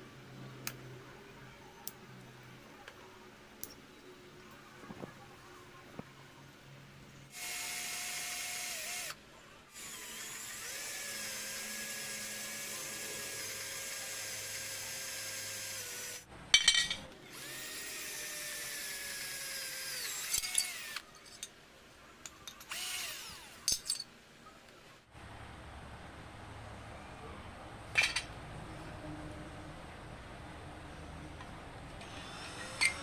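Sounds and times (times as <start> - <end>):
cordless drill whining: 7.4 - 9.2, 9.8 - 16.2, 17.3 - 21.0, 22.7 - 23.6.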